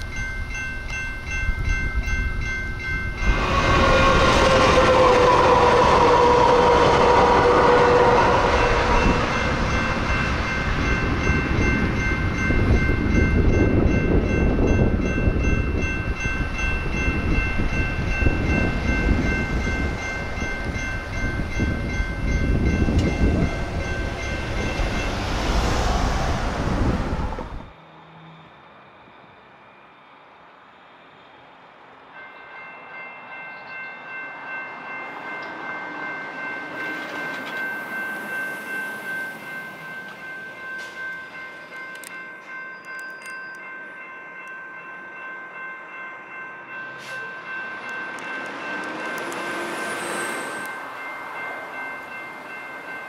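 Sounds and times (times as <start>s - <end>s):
railroad crossing bells ringing: 0.0s - 30.5s, 31.8s - 53.0s
train rumbling past: 0.0s - 53.0s
train horn blast: 3.3s - 10.0s.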